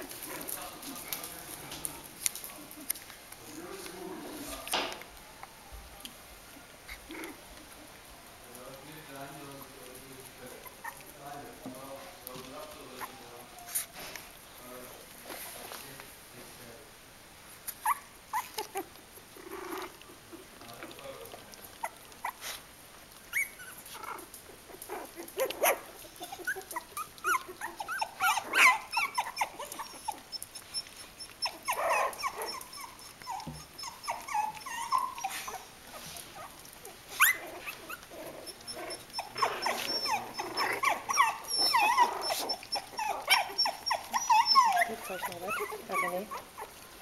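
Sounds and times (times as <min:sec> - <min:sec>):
puppies whining and squeaking: 0:10.5 - 0:11.2, 0:12.3 - 0:14.4, 0:17.6 - 0:20.6, 0:23.2 - 0:47.0.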